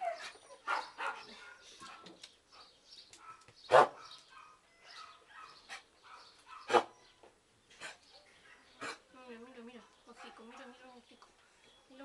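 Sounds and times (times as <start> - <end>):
dog barking: 0.6 - 7.0.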